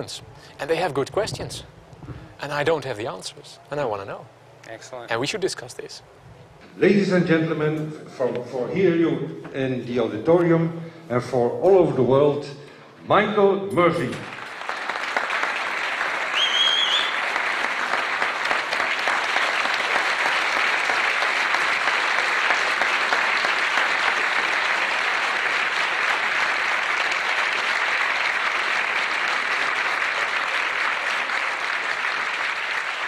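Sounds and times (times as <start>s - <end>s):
audience applauding: 14.2s - 33.0s
high whistle: 16.3s - 17.2s.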